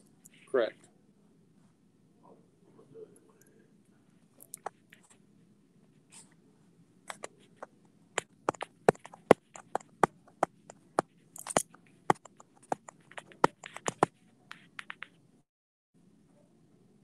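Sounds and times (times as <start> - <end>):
sharp clicks and taps: 7.1 - 15.2.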